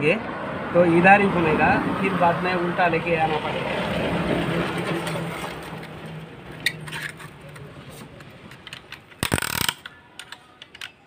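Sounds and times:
sharp ratchet clicks: 8.7s - 10.9s.

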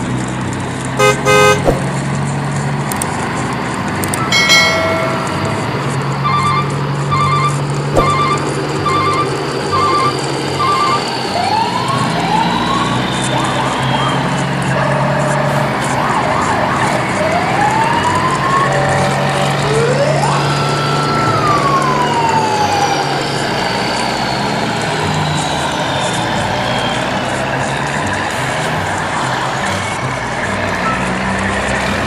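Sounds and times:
engine-like hum: 0.0s - 32.0s
siren-like whistle tones: 6.2s - 15.4s.

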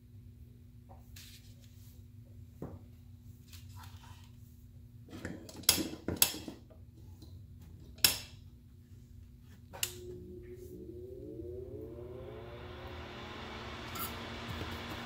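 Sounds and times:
extractor fan whine: 9.1s - 15.0s.

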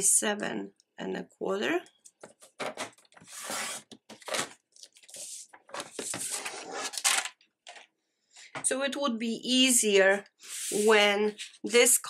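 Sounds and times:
paper trimmer blade swishing: 3.3s - 3.9s.

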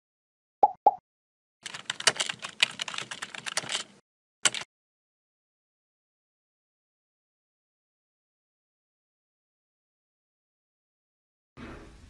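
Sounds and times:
computer keyboard typing: 1.6s - 4.7s.

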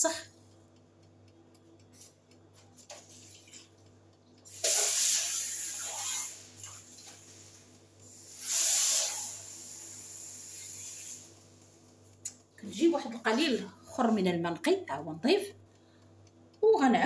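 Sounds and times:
dirty water poured into a sink: 4.6s - 7.2s.

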